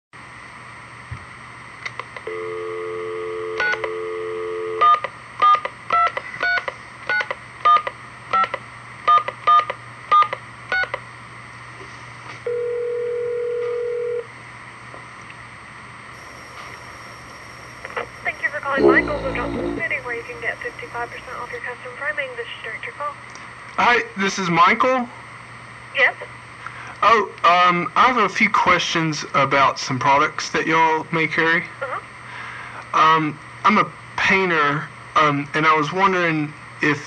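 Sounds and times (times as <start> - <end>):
dial tone: 2.3 - 5.0, 12.5 - 14.3.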